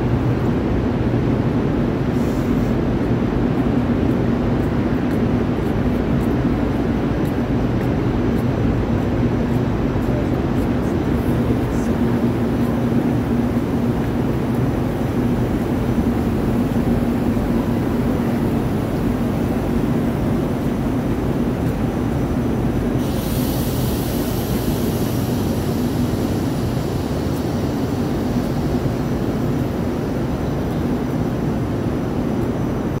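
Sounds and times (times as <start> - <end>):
electric train rumble and hum: 0.0 - 33.0
high hiss: 11.2 - 31.8.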